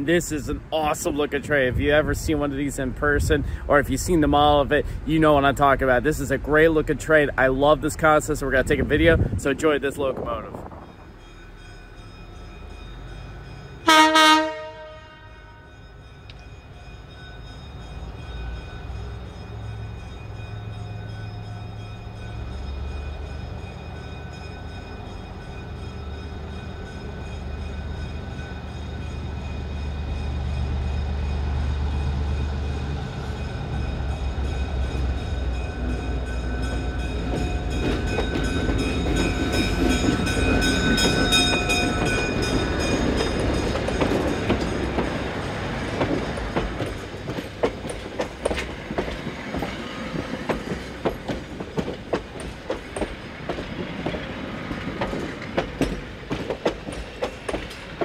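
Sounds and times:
diesel locomotive passing: 0:00.0 - 0:58.0
train wheels clickety-clack: 0:34.9 - 0:58.0.

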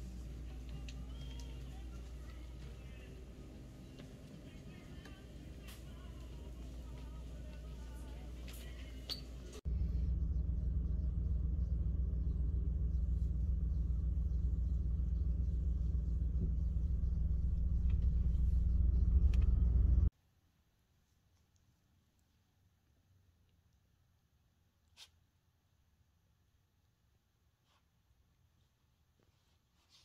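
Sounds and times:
loud low rumble: 0:09.7 - 0:20.1.

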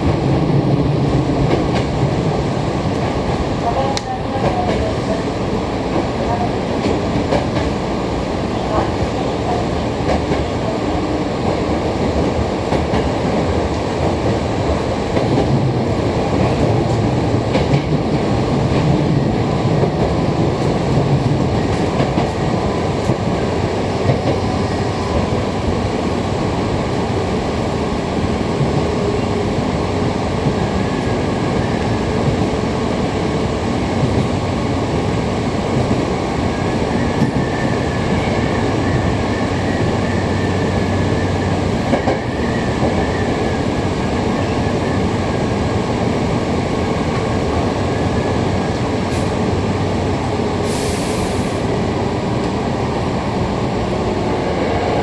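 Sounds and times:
clickety-clack of rails: 0:00.0 - 0:55.0
train wheels rumbling on rails: 0:00.0 - 0:55.0.

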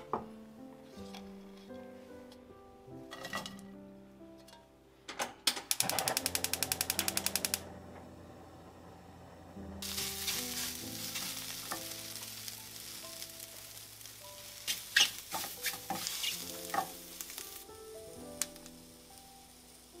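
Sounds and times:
food sizzling in a frying pan: 0:09.8 - 0:20.0.

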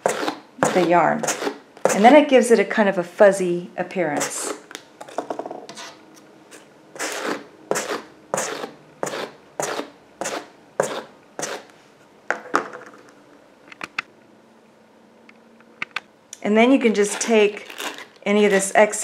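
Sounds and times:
wire brush scratching yarn: 0:00.0 - 0:02.2, 0:05.7 - 0:11.7, 0:16.9 - 0:19.0.

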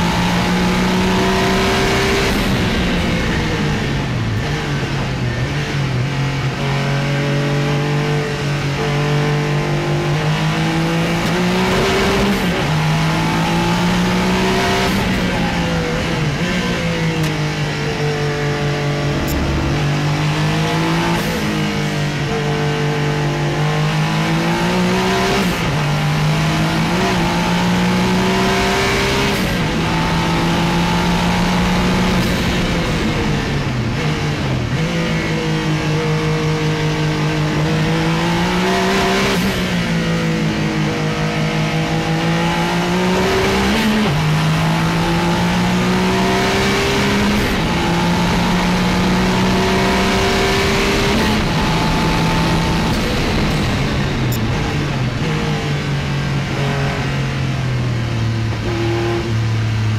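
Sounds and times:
racing engine revving: 0:00.0 - 0:59.9.

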